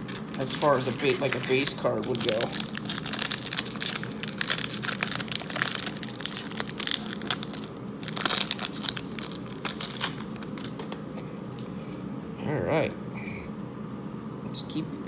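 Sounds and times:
foil wrapper crinkling and tearing: 0:00.0 - 0:10.9.

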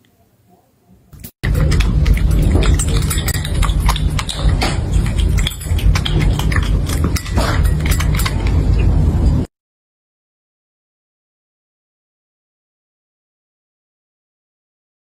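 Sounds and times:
dry kibble crunching: 0:01.4 - 0:08.9.

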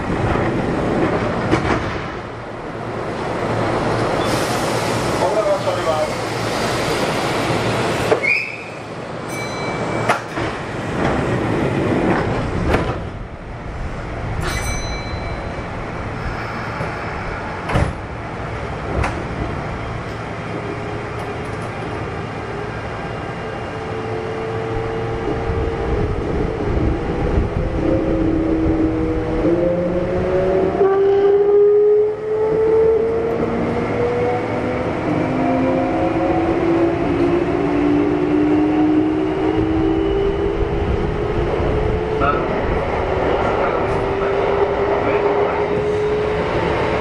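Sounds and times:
train clunks: 0:00.0 - 0:02.4, 0:09.3 - 0:13.2, 0:14.3 - 0:20.4
train chimes: 0:09.2 - 0:10.5, 0:14.4 - 0:16.3.

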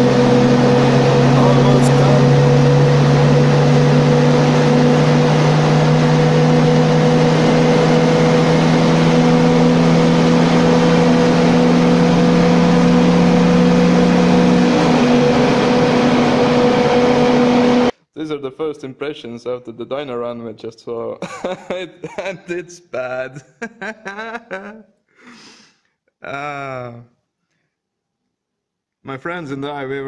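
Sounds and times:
car engine revving under load: 0:00.0 - 0:17.9
steady hum: 0:00.0 - 0:17.9.

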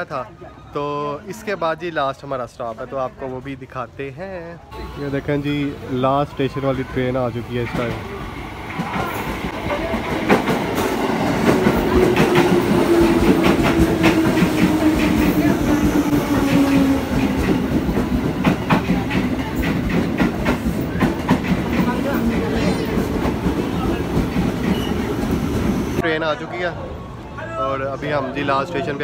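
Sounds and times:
train wheels clacking: 0:07.6 - 0:26.0.

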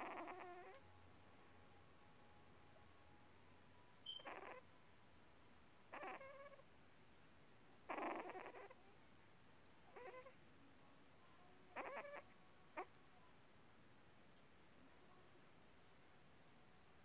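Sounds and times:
puppy whimpering: 0:00.0 - 0:00.8, 0:04.1 - 0:04.6, 0:06.0 - 0:06.6, 0:07.9 - 0:08.8, 0:09.9 - 0:10.3, 0:11.8 - 0:12.2.

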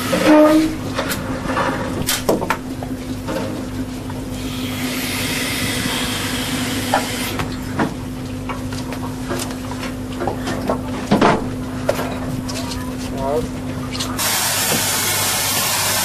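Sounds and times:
machinery hum: 0:00.0 - 0:16.0
loud hiss: 0:14.2 - 0:16.0.

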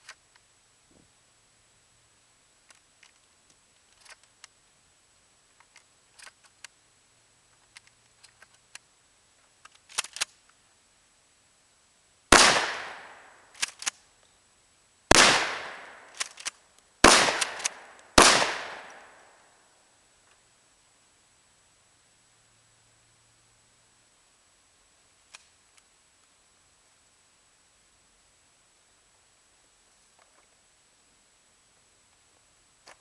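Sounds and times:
shotgun blasts: 0:12.3 - 0:13.4, 0:15.1 - 0:16.3, 0:17.0 - 0:19.3
sharp clacks of shotgun action: 0:15.2 - 0:19.0
light handling clicks: 0:16.1 - 0:18.1.

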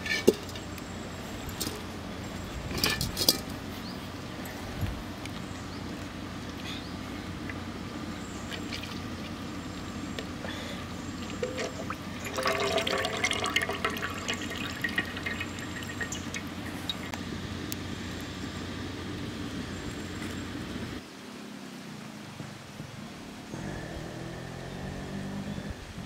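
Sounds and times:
oil trickling and splashing into pan: 0:11.2 - 0:17.1.

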